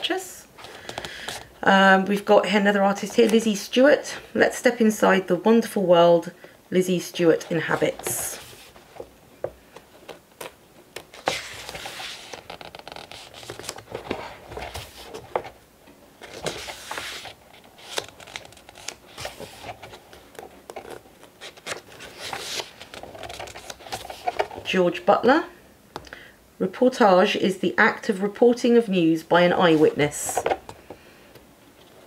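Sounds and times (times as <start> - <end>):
paper pages rustling: 7.4 - 9.1, 9.7 - 15.6, 16.2 - 24.6.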